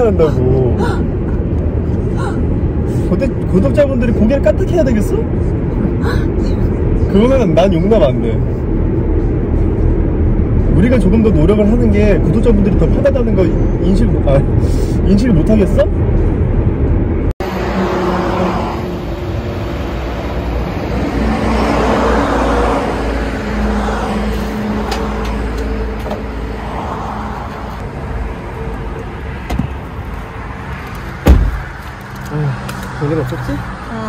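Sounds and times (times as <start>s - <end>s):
cars passing: 0.0s - 34.0s
car door shutting: 29.4s - 29.8s, 31.2s - 31.8s.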